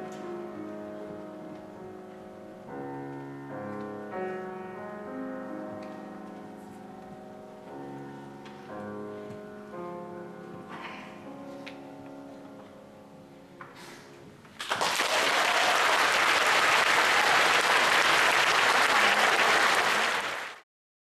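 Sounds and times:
audience applause: 0:14.6 - 0:20.6.

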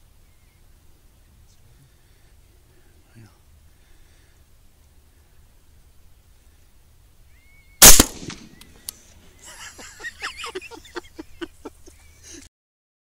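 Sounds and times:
rifle shot: 0:07.8 - 0:08.8
faint sharp click: 0:08.6 - 0:09.0.

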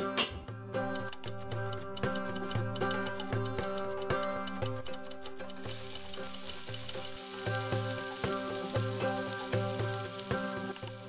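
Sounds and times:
background music: 0:00.0 - 0:11.0
onions sizzling in hot oil: 0:05.5 - 0:11.0.

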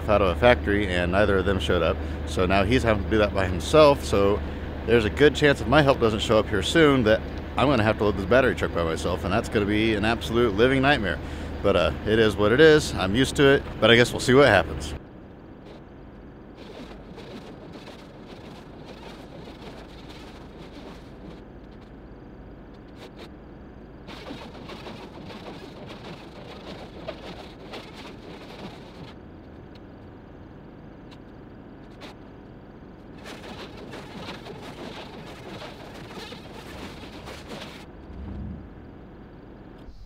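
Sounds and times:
low rumble: 0:37.9 - 0:40.0.

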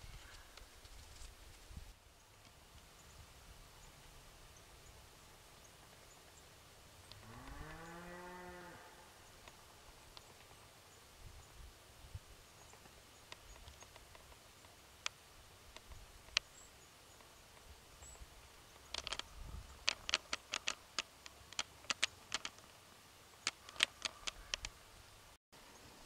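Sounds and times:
sharp clicks: 0:18.7 - 0:22.8, 0:23.4 - 0:24.8.

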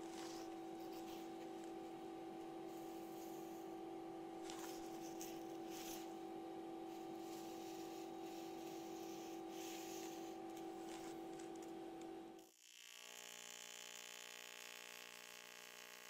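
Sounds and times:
steady two-tone hum: 0:00.0 - 0:12.4.

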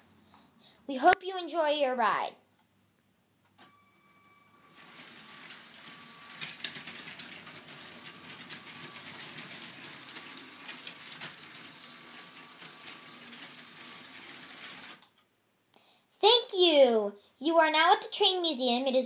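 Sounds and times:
toy train motor whirring: 0:04.7 - 0:15.1.

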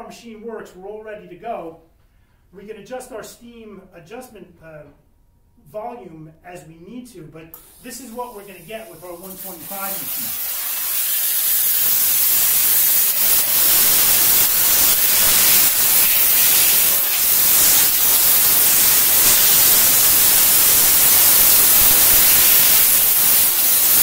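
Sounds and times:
steam jetting hiss: 0:07.6 - 0:24.0.

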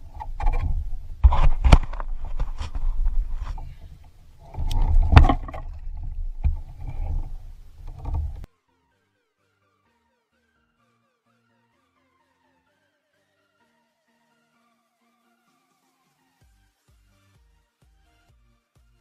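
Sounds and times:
knocks and thumps on kayak hull: 0:00.0 - 0:08.5
wind rumble on microphone: 0:00.0 - 0:08.5.

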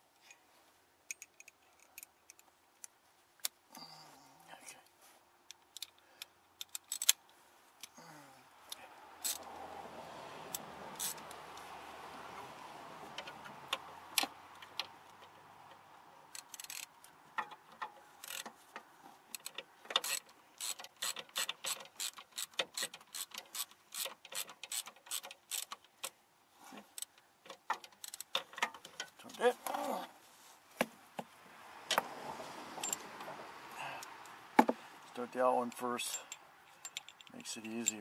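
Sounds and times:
hand ratchet clicking: 0:06.6 - 0:07.2, 0:16.3 - 0:18.5, 0:19.3 - 0:26.1, 0:26.9 - 0:29.1.

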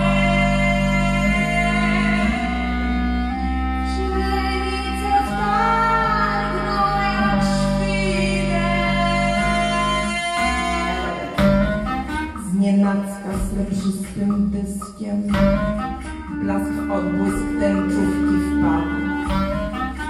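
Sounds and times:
clarinet notes: 0:00.0 - 0:13.6, 0:15.3 - 0:20.0
woman singing: 0:00.0 - 0:20.0.

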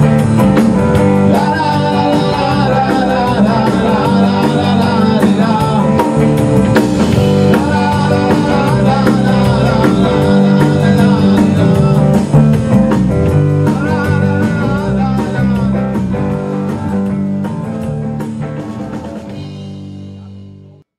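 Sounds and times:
rock band playing live: 0:00.0 - 0:20.8
person singing: 0:01.1 - 0:16.8.

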